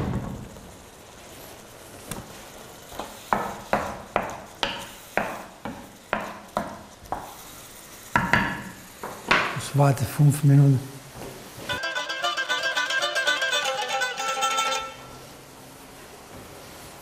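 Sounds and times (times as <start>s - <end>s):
pan simmering with low sizzle: 0.0s - 9.8s.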